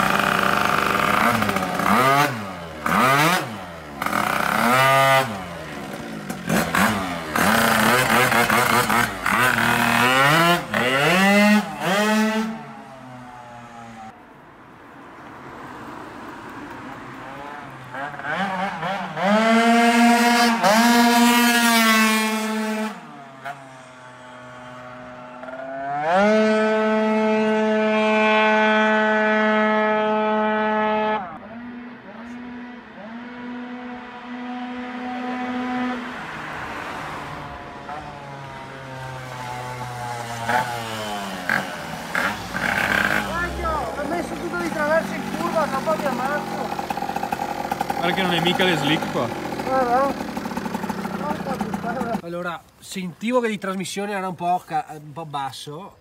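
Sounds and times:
scooter engine revving high: 0.0 - 14.2, 17.3 - 52.2.

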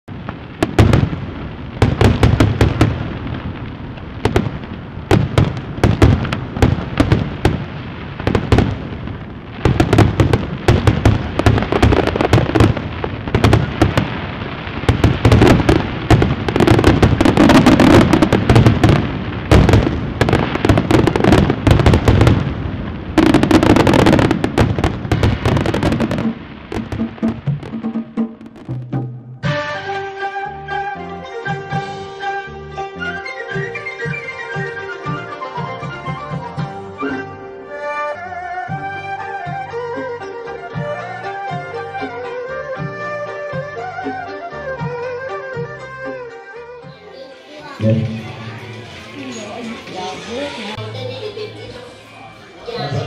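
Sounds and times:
fireworks crackling and popping: 0.0 - 30.3, 46.9 - 51.4.

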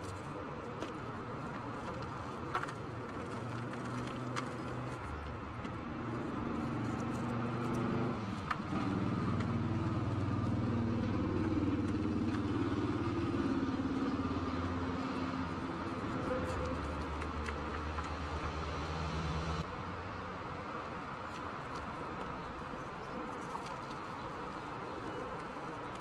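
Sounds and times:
faint crunchy clicks of chalk crumbling: 0.0 - 13.2, 13.9 - 18.6, 21.2 - 26.0.

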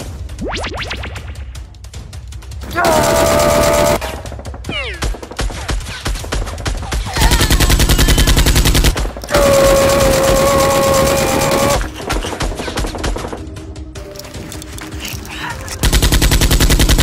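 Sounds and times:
automatic gunfire: 2.8 - 4.0, 5.3 - 13.3, 15.8 - 17.0
long held cry: 9.3 - 11.8.

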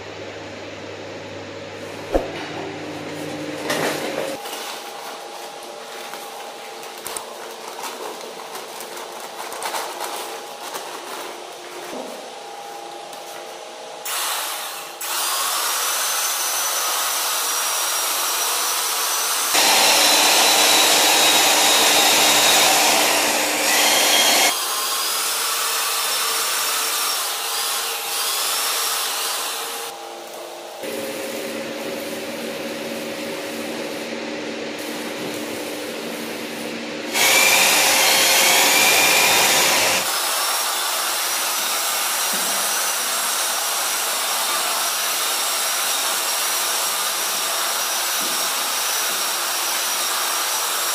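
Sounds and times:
power tool whining: 19.5 - 24.6, 37.1 - 40.1.

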